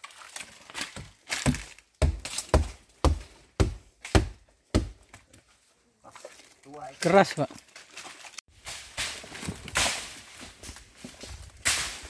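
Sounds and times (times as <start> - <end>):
chopping into hard wood: 1.3 - 5.0.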